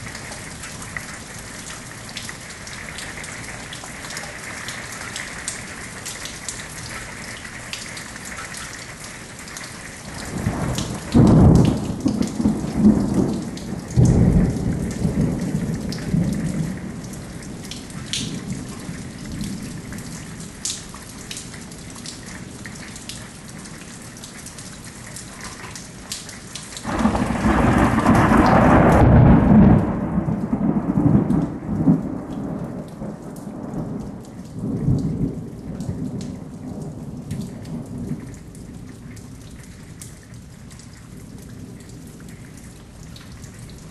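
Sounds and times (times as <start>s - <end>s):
steady rain: 0.0s - 43.9s
thunder rolling: 10.3s - 17.0s, 26.8s - 34.0s.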